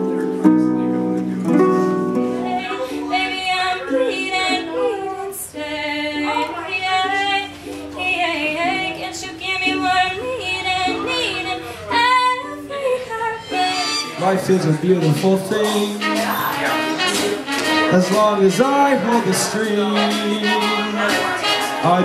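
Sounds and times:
held accompanying notes: 0.0 - 22.0
woman singing with vibrato: 2.3 - 14.2, 15.9 - 17.8, 19.8 - 21.9.

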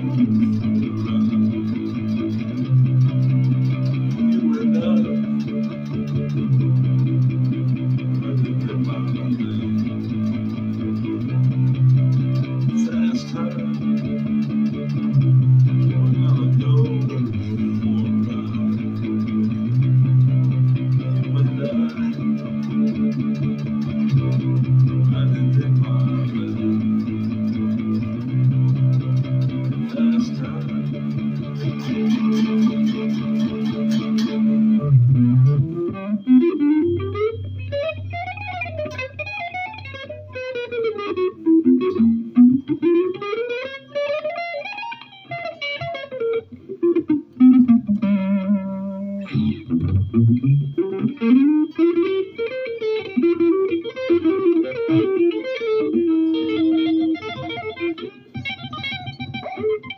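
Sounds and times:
electric guitar playing: 0.0 - 59.9.

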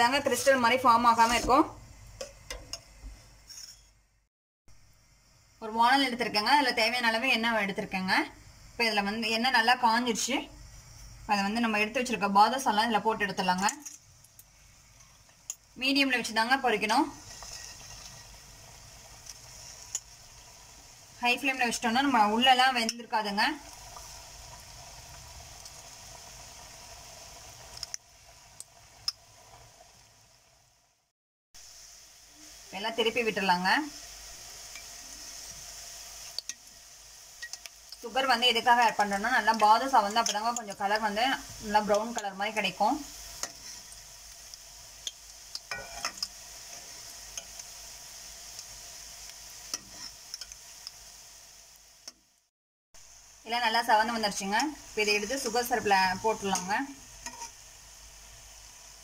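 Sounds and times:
dough deep-frying in hot oil: 0.0 - 59.0
metal spoon scraping pan: 1.0 - 2.8, 3.4 - 3.9, 17.2 - 18.4, 43.4 - 44.0, 45.6 - 47.6, 49.7 - 50.6, 56.4 - 57.6.

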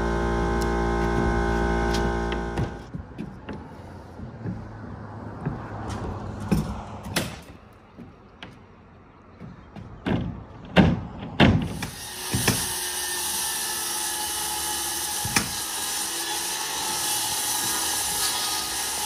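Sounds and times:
circular saw cutting plywood: 0.0 - 2.9, 11.7 - 19.0.

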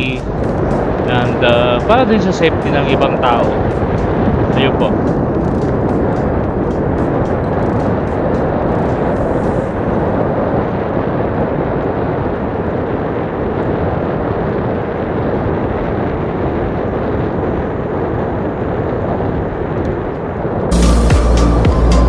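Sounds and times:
bike road noise: 0.0 - 12.1
wind rush on microphone: 0.0 - 21.2.

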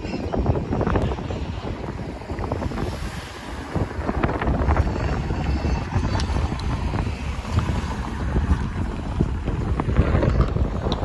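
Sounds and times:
wind buffeting microphone: 0.0 - 11.0
cars driving past: 1.1 - 11.0.

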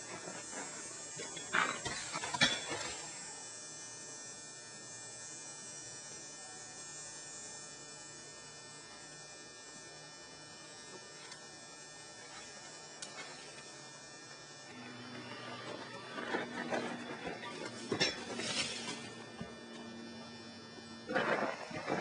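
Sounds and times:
electrical buzz with tones: 0.0 - 22.0
noisy burst: 14.6 - 22.0.

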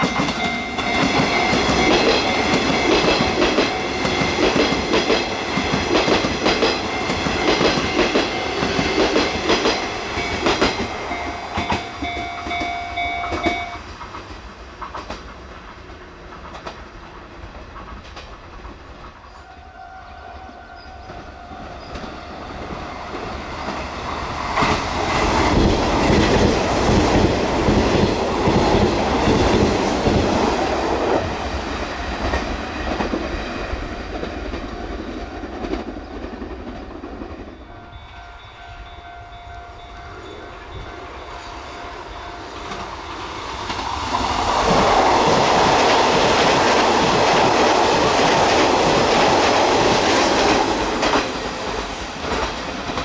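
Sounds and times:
train wheels clattering over rails: 0.0 - 19.2, 21.9 - 37.6, 42.6 - 53.0.

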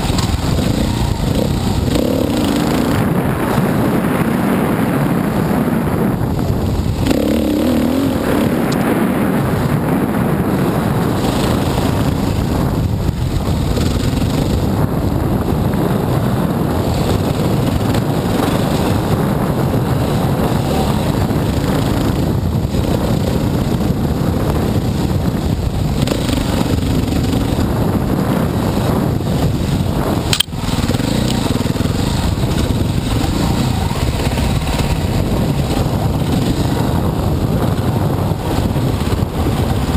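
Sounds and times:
dirt bike engine revving: 0.0 - 39.9
sharp click: 30.3 - 30.6.

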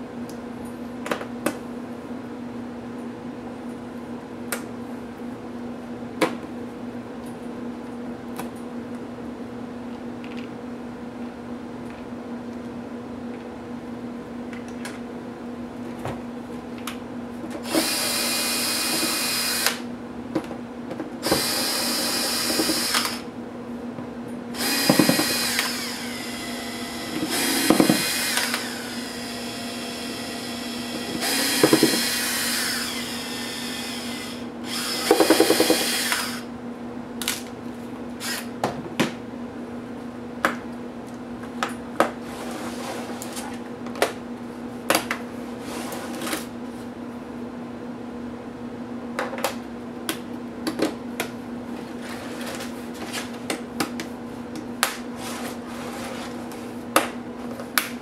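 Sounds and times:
electric screwdriver whirring: 17.6 - 19.8, 21.2 - 23.2, 24.6 - 36.5, 38.2 - 38.5.

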